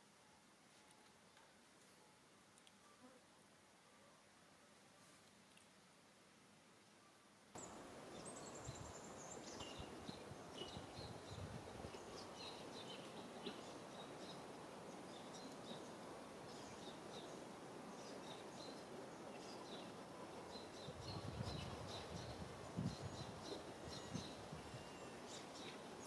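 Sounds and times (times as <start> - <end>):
steady low hiss: 0.0 - 26.0
small birds chirping: 7.6 - 26.0.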